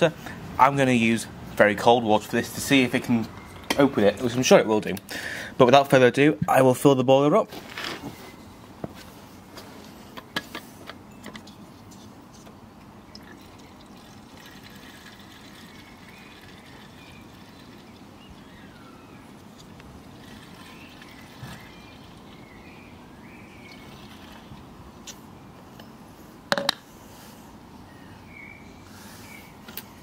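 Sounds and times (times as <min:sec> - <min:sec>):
water trickling into boiler: 0:13.1 - 0:18.5, 0:20.0 - 0:22.4.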